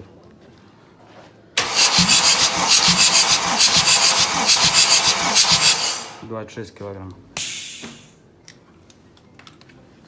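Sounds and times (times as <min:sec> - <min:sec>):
diesel engine cranking on starter: 0:01.6 - 0:06.2.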